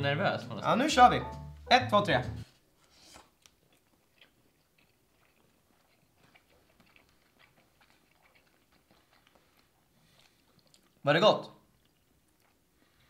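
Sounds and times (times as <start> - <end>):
people chewing food: 2.6 - 13.0.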